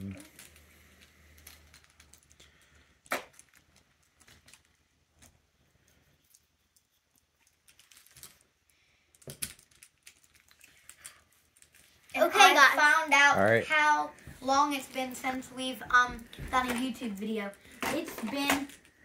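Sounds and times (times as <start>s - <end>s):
plastic toy trucks clicking: 16.6s - 19.0s.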